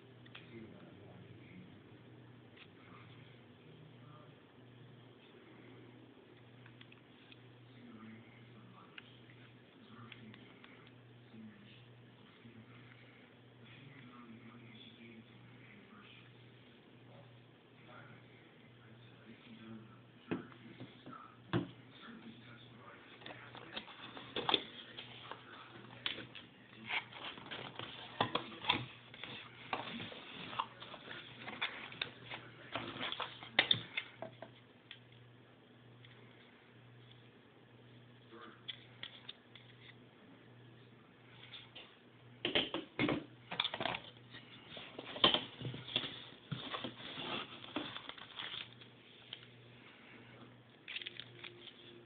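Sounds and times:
cardboard rustling and scraping: 26.8 - 33.6, 44.7 - 48.7.

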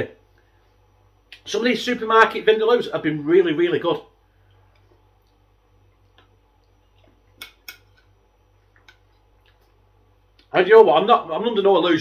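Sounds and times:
fork scraping against a plate: 7.4 - 8.1.

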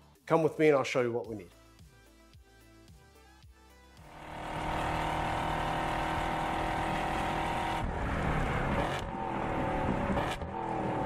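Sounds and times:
racing car engines: 4.0 - 11.0.

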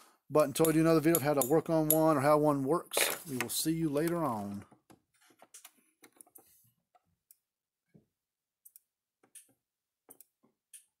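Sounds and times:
faint clicks and ticks: 8.6 - 11.0.

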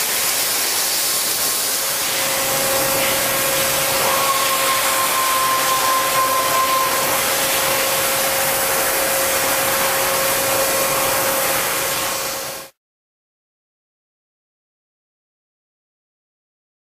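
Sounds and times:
hiss of water jets: 0.0 - 12.7
machine whine: 1.8 - 12.7
higher machine tone: 2.0 - 11.0.

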